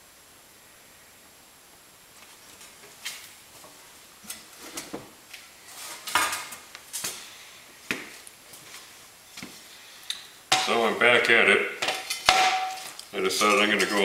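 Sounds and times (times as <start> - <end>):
cast iron skillet knocks and clanks: 10.5 - 10.8, 11.8 - 14.0.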